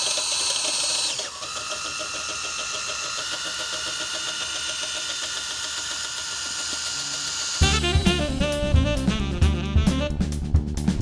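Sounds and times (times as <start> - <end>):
cordless drill spinning rods: 0.0 - 8.4.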